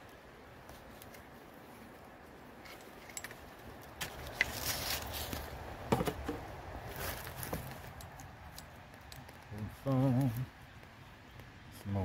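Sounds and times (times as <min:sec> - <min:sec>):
footsteps through brush: 0:00.6 - 0:08.6.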